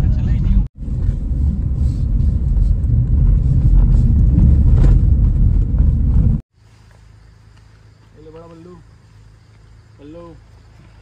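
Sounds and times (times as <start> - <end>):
low hum: 0.0 - 6.4
tyre and engine rumble: 0.0 - 6.4.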